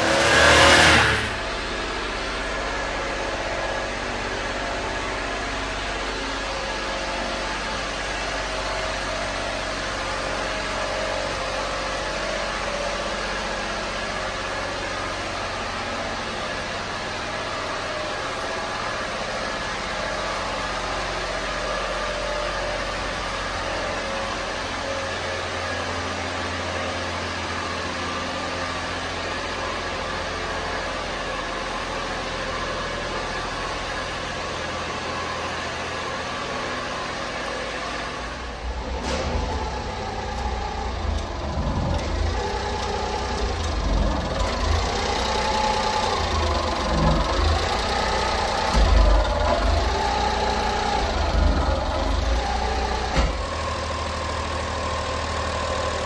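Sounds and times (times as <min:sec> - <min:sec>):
truck engine idling: 0:38.4 - 0:56.0.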